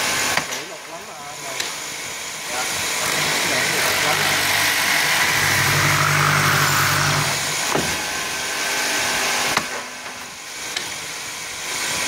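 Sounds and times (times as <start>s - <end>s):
drilling machine motors humming: 1.9s - 9.3s.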